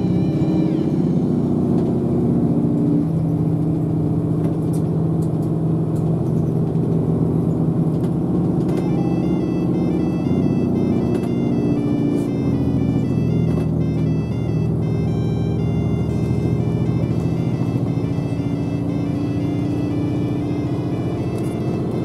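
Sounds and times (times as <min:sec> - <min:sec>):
bus engine humming: 0:00.0 - 0:22.0
electronic tune of high notes: 0:08.7 - 0:22.0.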